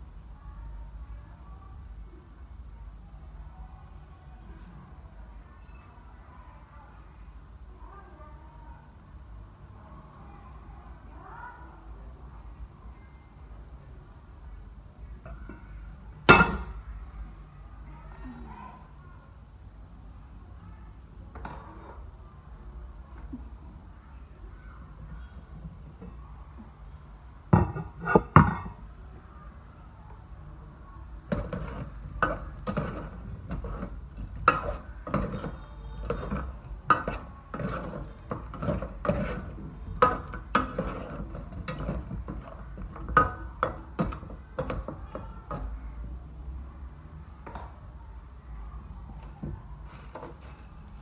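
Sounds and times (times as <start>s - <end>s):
metal pot lid clattering: 16.3s - 16.8s, 31.3s - 44.7s
metal spoon scraping in pot: 31.3s - 45.6s.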